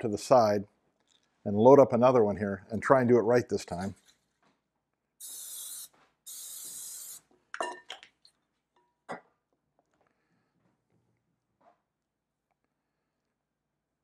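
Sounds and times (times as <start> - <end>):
aerosol cooking spray spritzes: 5.2 - 7.3.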